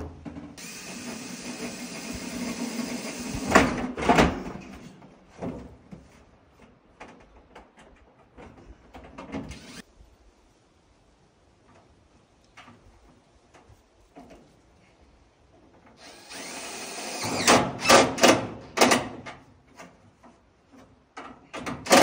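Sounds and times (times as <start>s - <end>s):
cordless drill running: 0.6s - 3.6s, 9.5s - 9.8s, 16.0s - 17.5s.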